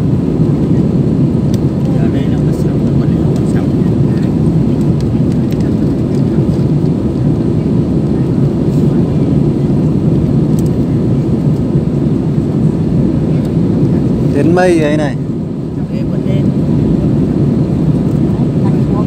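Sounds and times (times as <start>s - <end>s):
jet airliner cabin rumble: 0.0s - 19.0s.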